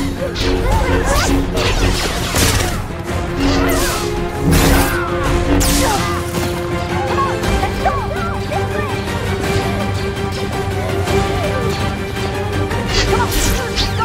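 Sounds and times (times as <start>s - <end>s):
dramatic film score: 0.0s - 14.0s.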